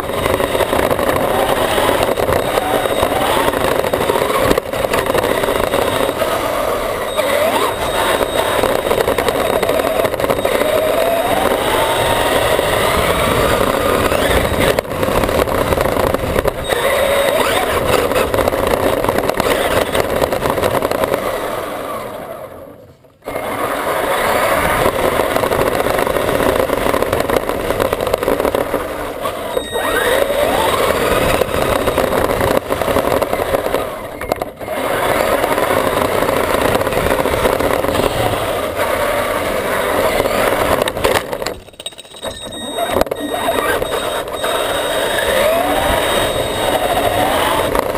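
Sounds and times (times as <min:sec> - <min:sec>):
electric motors whining: 0:00.0 - 0:47.9
chassis rattling: 0:24.6 - 0:47.9.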